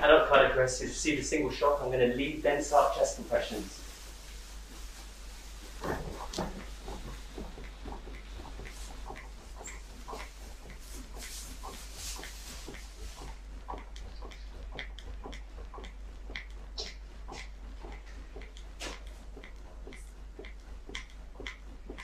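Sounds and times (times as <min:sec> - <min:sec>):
rustling: 0:02.8 - 0:14.4
manikin compression clicks and knocks: 0:05.6 - 0:22.0.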